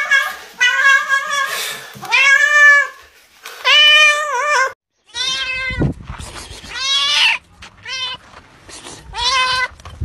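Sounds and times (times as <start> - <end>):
cats meowing: 0.0 - 3.0.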